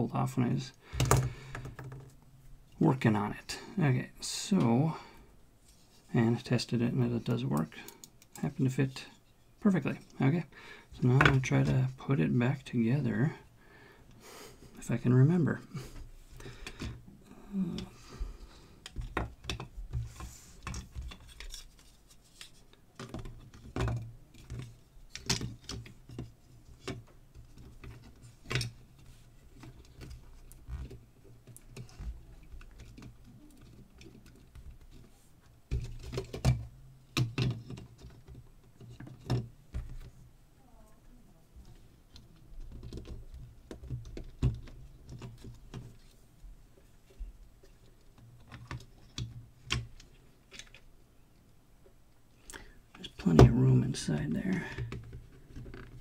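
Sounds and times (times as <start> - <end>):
plastic parts clicking and tapping: 1.0 - 2.2, 18.8 - 28.8, 35.7 - 40.0, 42.1 - 46.0.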